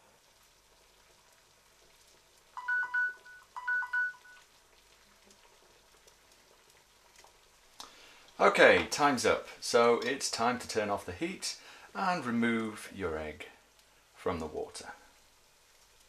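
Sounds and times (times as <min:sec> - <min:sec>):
two-tone electronic alarm beeps: 0:02.6 - 0:04.4.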